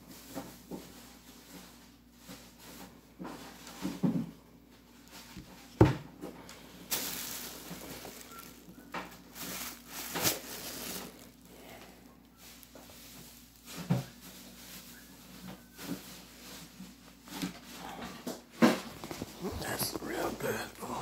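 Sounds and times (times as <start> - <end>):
plastic packaging crinkling: 6.8 - 16.8, 18.7 - 21.0.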